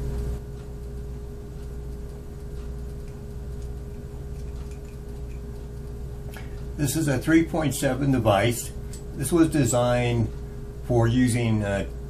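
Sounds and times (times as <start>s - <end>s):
steady electrical hum: 0.0s - 12.0s
faint clicks and taps of metal device: 0.5s - 6.7s.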